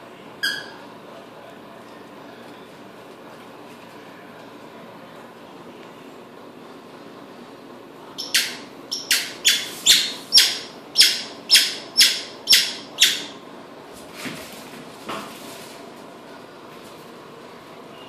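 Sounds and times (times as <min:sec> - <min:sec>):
squeaky toy ball squeaking: 0:00.4 - 0:00.8, 0:08.2 - 0:13.4.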